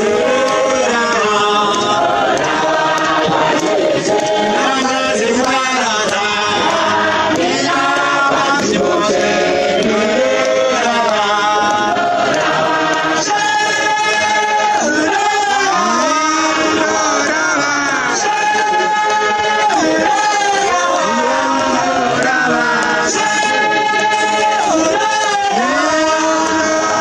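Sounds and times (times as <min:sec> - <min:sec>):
congregation singing unaccompanied: 0:00.0 - 0:27.0.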